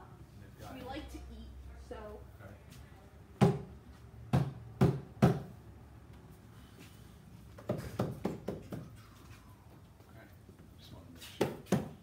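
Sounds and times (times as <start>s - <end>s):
knocks on wooden cabinets: 4.3s - 5.5s.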